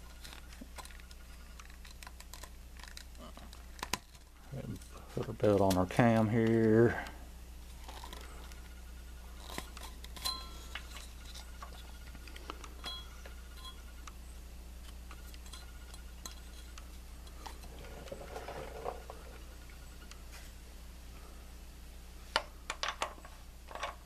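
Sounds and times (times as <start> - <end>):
steady low hum: 0.0 - 24.0
small ringing clinks: 10.2 - 11.3, 12.8 - 14.0.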